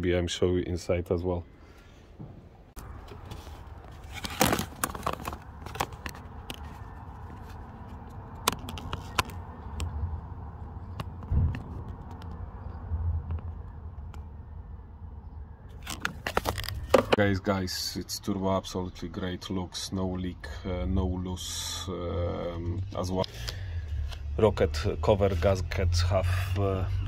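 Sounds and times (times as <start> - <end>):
clicks and scrapes: 3.0 - 10.0, 15.7 - 17.2
low thud: 11.2 - 12.0.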